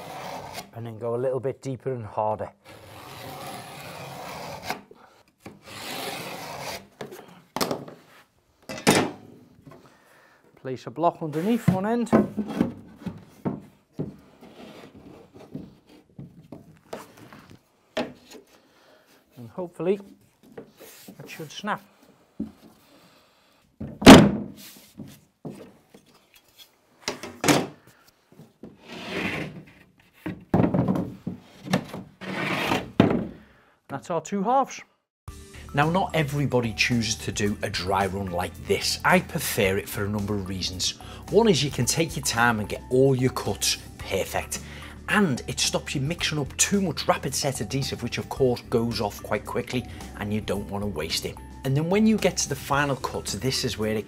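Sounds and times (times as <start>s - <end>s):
scoring tool scraping board: 0.0s - 0.7s, 2.6s - 7.2s, 14.0s - 16.3s, 28.7s - 30.4s, 31.4s - 33.0s
board knocking and scraping: 11.4s - 18.5s, 27.0s - 33.4s.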